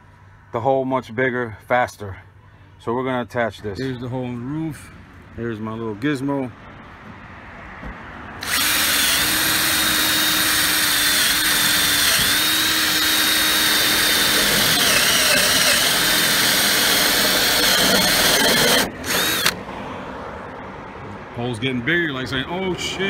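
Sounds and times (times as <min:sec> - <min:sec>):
cordless drill cutting steel: 0:08.4 - 0:19.6.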